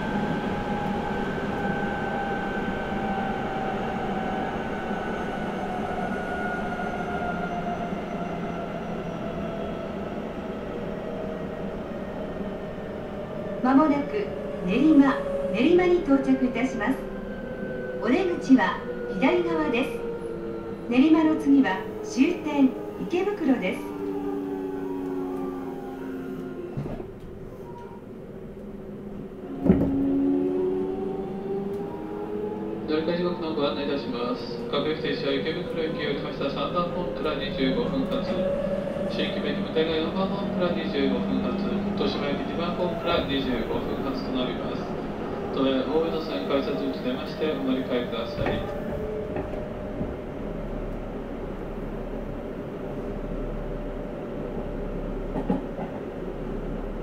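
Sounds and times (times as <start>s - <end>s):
train wheel and rail noise: 0.0s - 57.0s
electric train running: 29.6s - 51.6s.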